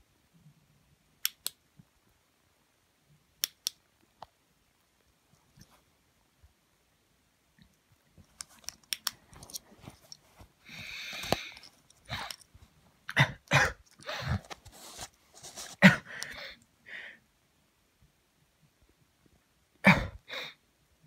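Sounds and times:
rustling hiss: 0:08.2 - 0:13.1.

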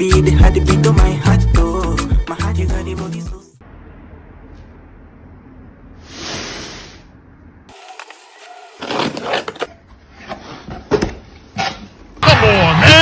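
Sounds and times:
cardboard and tape rustling: 0:07.7 - 0:12.1.

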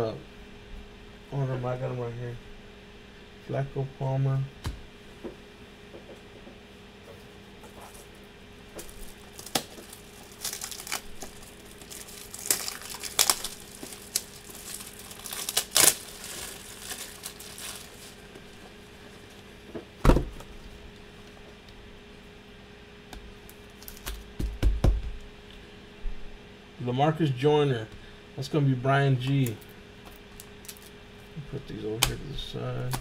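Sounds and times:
plastic packaging crinkling: 0:08.8 - 0:19.3, 0:23.5 - 0:24.2, 0:29.6 - 0:30.9.

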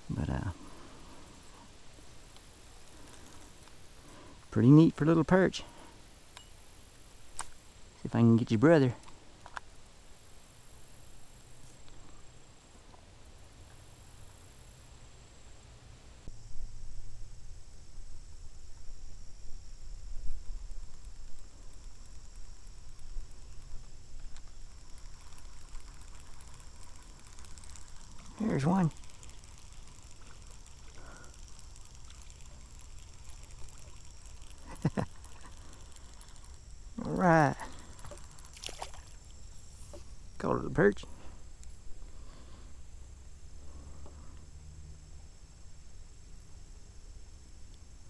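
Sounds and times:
faint outdoor background: 0:00.0 - 0:48.0
very high hiss: 0:00.0 - 0:48.0
fish splashing at water surface: 0:37.7 - 0:39.3.

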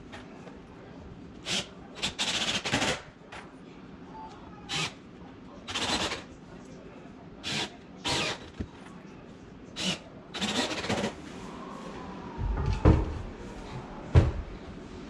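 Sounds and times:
knocks on wooden cabinet: 0:12.4 - 0:13.2, 0:14.1 - 0:14.4.

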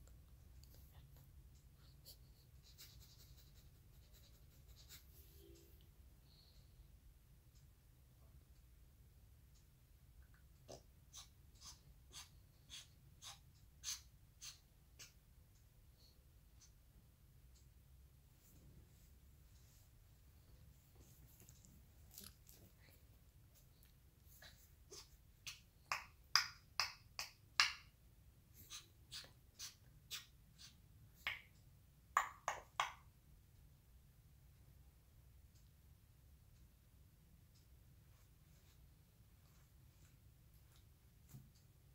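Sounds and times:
parrot mimicking sniffing: 0:11.1 - 0:15.1, 0:28.6 - 0:30.8.

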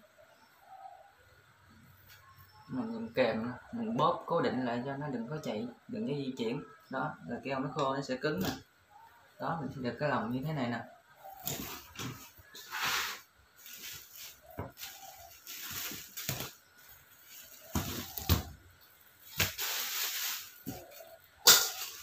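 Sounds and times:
scraping rustles: 0:11.3 - 0:18.6.

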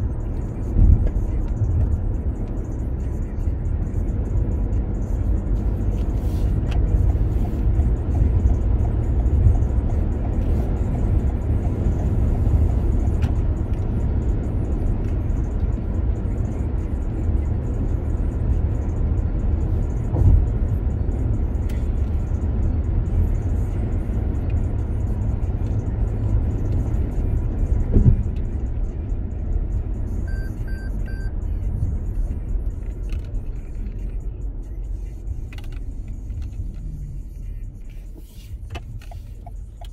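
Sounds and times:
road and tyre rumble: 0:00.0 - 0:39.9
short high beeps: 0:30.3 - 0:31.4.

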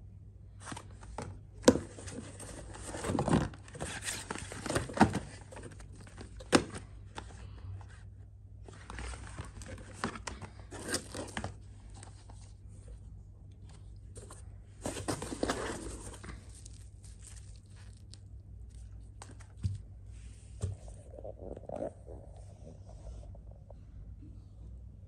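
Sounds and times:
plastic wrapping crinkling: 0:14.2 - 0:19.6.

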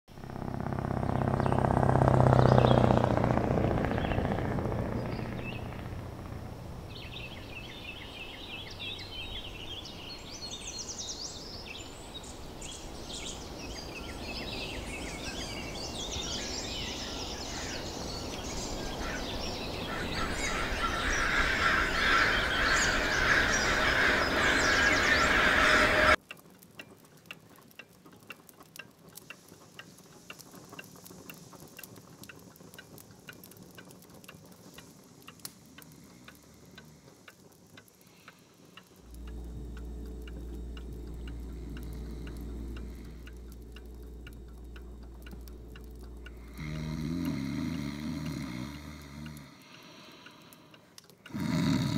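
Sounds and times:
low rumble: 0:00.1 - 0:10.0, 0:39.0 - 0:47.2
birds chirping and calling: 0:01.1 - 0:26.2, 0:39.1 - 0:47.4
mantel clock ticking: 0:20.2 - 0:51.9.

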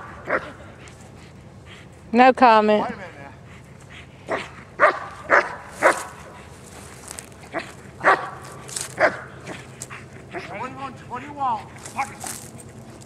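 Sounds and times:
dog barking: 0:00.2 - 0:00.5, 0:04.3 - 0:06.4, 0:07.5 - 0:09.6.

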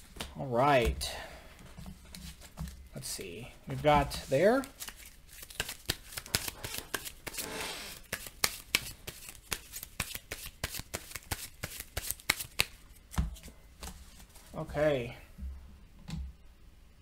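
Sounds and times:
cards rustling: 0:02.0 - 0:14.6
sleeved cards clicking and snapping: 0:04.4 - 0:07.4, 0:08.0 - 0:14.0.

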